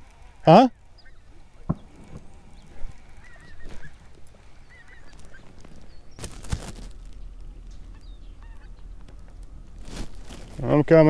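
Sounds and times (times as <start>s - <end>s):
birds calling: 0.0s - 11.0s
sharp knock: 1.7s - 2.2s.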